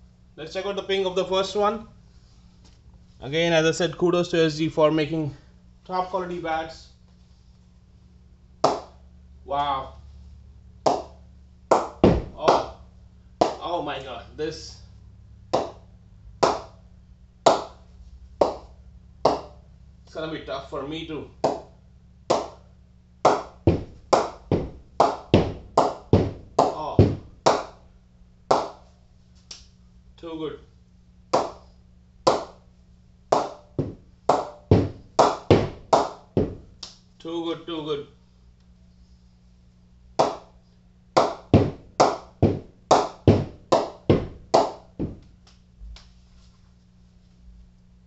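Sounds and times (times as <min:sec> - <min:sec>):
ball knocking on cricket bat: 0:08.6 - 0:09.0, 0:11.7 - 0:12.7, 0:15.5 - 0:15.8, 0:16.4 - 0:16.7, 0:18.4 - 0:18.7, 0:19.3 - 0:19.6, 0:23.3 - 0:27.7, 0:28.5 - 0:28.8, 0:31.3 - 0:31.6, 0:32.3 - 0:32.6, 0:33.3 - 0:36.8, 0:41.2 - 0:45.3.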